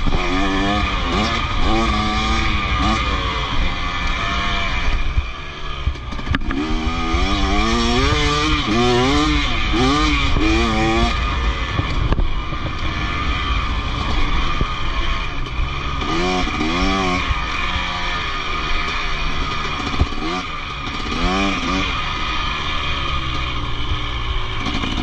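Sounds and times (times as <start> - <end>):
wind noise: 0.0 - 17.4
motorcycle engine revving: 0.0 - 25.0.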